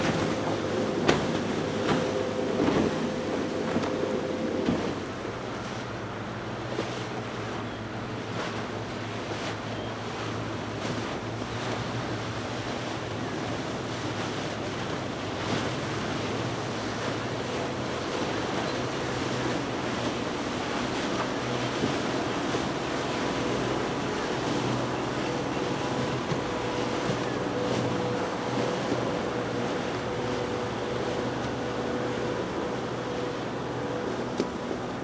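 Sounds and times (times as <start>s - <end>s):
boat wake rushing: 0.0s - 35.0s
outboard engines running: 0.0s - 35.0s.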